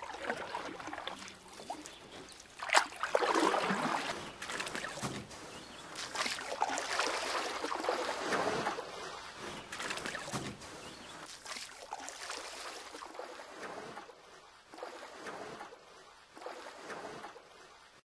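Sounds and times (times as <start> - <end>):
water lapping: 0.0 - 18.0.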